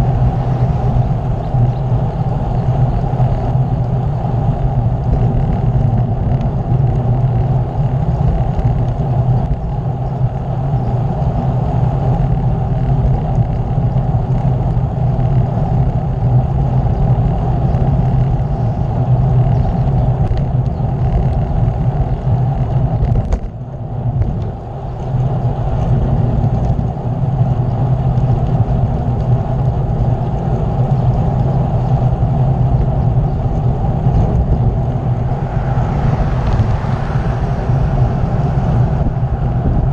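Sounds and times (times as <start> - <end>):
wind rush over microphone: 0.0 - 39.9.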